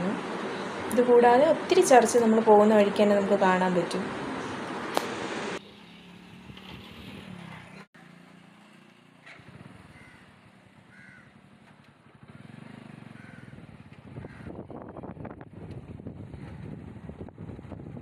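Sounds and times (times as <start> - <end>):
distant traffic rumble: 0.0 - 18.0
faint bird calls: 9.9 - 10.3, 10.9 - 11.4, 12.3 - 13.6.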